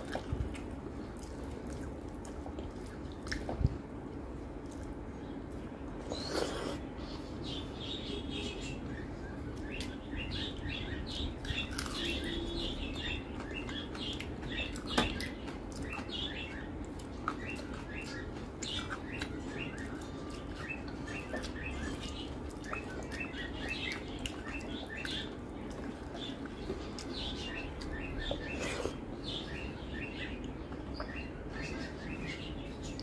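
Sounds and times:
wet chewing and lip smacks: 0:00.0 - 0:03.8, 0:16.8 - 0:29.0.

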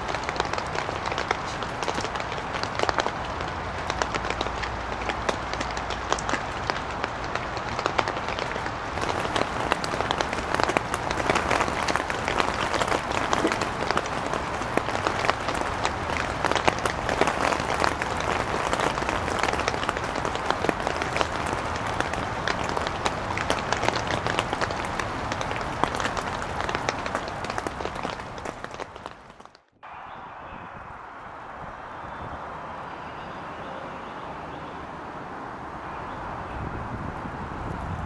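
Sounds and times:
heavy rain falling: 0:00.0 - 0:38.0.

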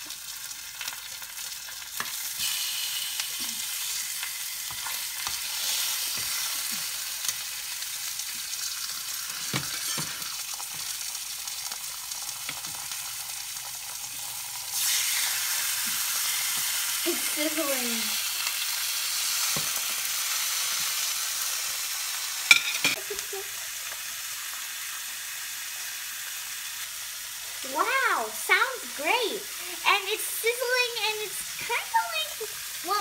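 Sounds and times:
fish sizzling in hot oil: 0:00.0 - 0:33.0
utensils clicking on plate and pan: 0:04.6 - 0:06.5, 0:09.4 - 0:10.4, 0:22.5 - 0:23.0.

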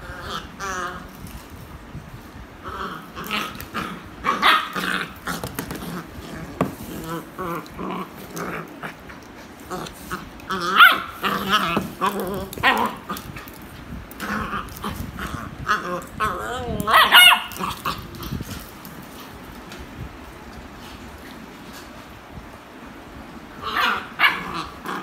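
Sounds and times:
dog growling: 0:00.0 - 0:01.1, 0:02.6 - 0:13.5, 0:14.2 - 0:18.7, 0:23.6 - 0:25.0
dog barking: 0:10.8 - 0:11.1, 0:16.9 - 0:17.5.

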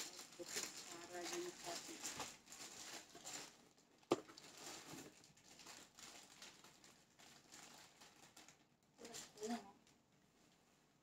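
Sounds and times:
plastic packaging rustling: 0:00.0 - 0:10.7.

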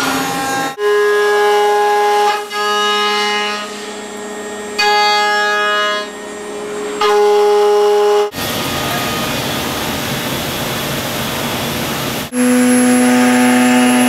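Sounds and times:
router spindle cutting metal whine: 0:00.0 - 0:14.0.

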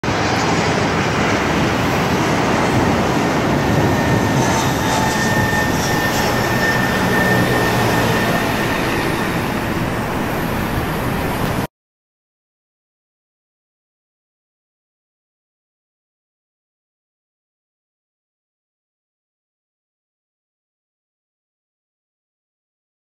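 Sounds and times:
jet engines roaring at takeoff: 0:00.0 - 0:11.7.

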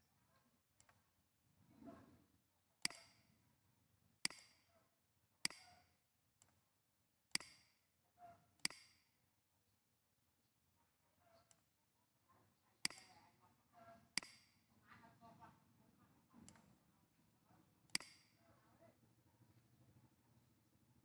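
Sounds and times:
computer mouse clicking: 0:02.8 - 0:03.3, 0:05.5 - 0:06.6, 0:12.9 - 0:13.2, 0:16.4 - 0:16.7, 0:17.9 - 0:18.4.

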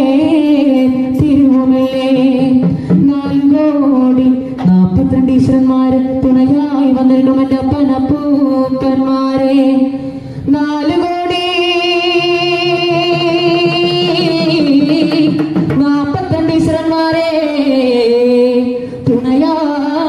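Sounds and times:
drum strokes: 0:01.1 - 0:05.2, 0:11.3 - 0:17.0.

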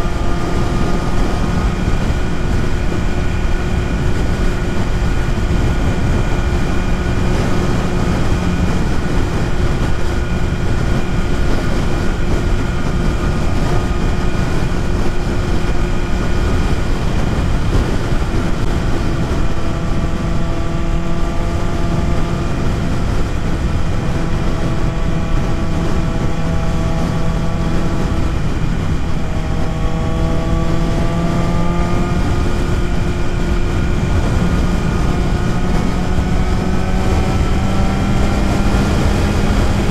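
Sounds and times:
motorcycle engine running: 0:00.0 - 0:39.9
wind rush on microphone: 0:00.0 - 0:39.9.

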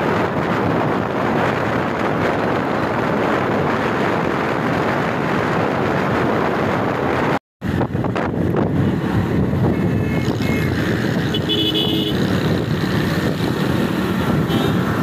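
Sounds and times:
road noise: 0:00.0 - 0:15.0
wind rushing on microphone: 0:00.0 - 0:15.0
motorcycle engine: 0:07.7 - 0:15.0.

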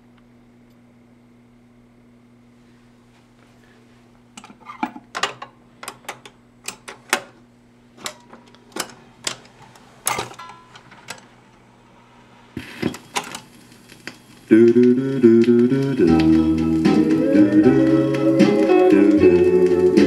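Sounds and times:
record changer mechanism clunk: 0:08.0 - 0:11.3.

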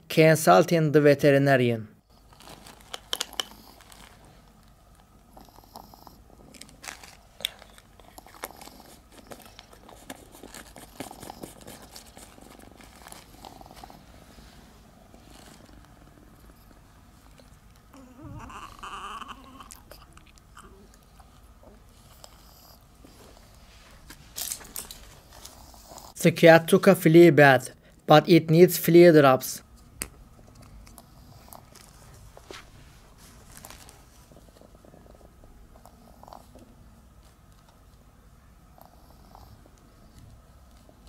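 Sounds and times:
cat chewing and crunching: 0:02.1 - 0:18.0, 0:19.6 - 0:26.1, 0:30.2 - 0:38.0, 0:38.7 - 0:41.0.

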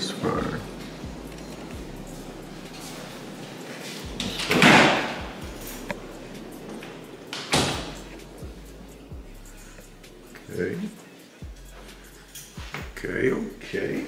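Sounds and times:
door rushing noise: 0:04.0 - 0:05.9, 0:06.6 - 0:08.1.

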